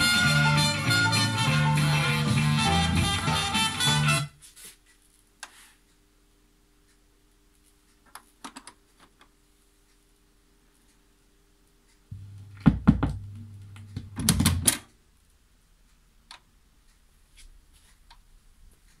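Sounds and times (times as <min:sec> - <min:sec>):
turntable motor hum: 0:12.1 - 0:14.7
turntable mechanism clunks and clicks: 0:12.2 - 0:14.9.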